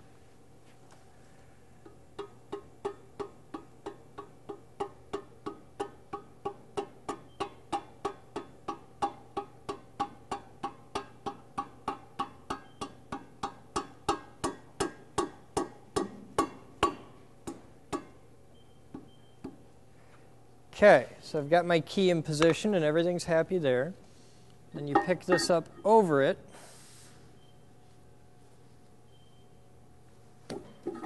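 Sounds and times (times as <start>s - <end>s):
rubber mallet tapping metal: 24.9s - 25.9s.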